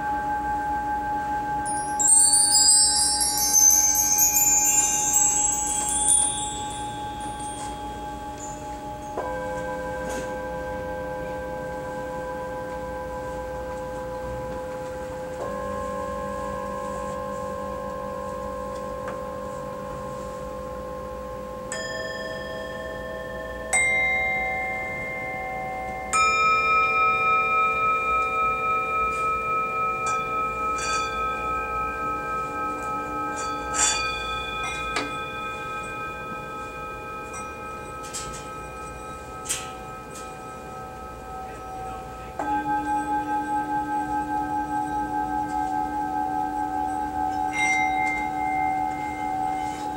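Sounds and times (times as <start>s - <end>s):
singing bowls ringing: 0.0s - 49.9s
light metallic tinks: 1.6s - 10.4s, 21.7s - 46.0s.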